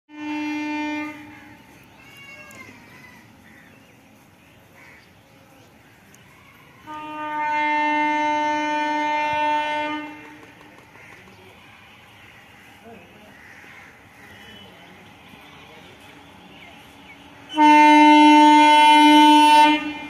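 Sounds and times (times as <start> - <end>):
locomotive horn blasts: 0.1 - 1.8, 6.8 - 10.6, 14.2 - 20.0.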